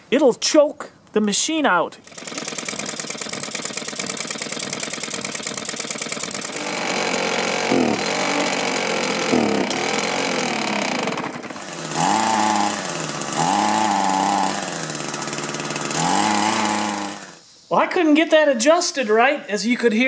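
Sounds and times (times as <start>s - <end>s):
small two-stroke engine revving: 2.0s - 17.4s.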